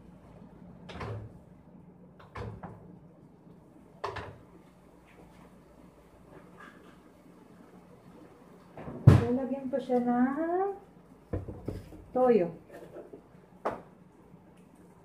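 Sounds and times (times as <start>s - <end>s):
dull knocks in kitchen: 8.8s - 9.4s, 11.3s - 11.9s.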